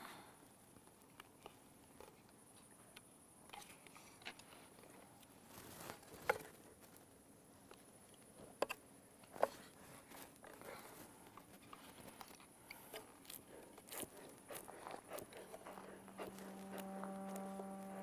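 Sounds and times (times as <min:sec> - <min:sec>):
quiet background hush: 0:00.0 - 0:18.0.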